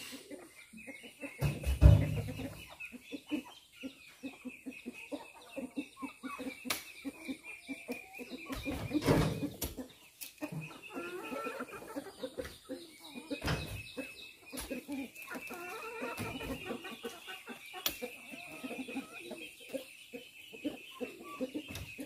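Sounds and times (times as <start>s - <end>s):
chickens clucking: 0.0s - 22.0s.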